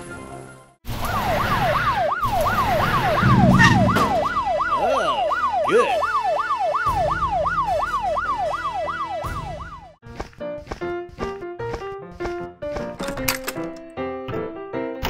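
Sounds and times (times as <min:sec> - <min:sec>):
police siren yelping: 0:00.9 - 0:10.0
low rumble: 0:02.5 - 0:04.8.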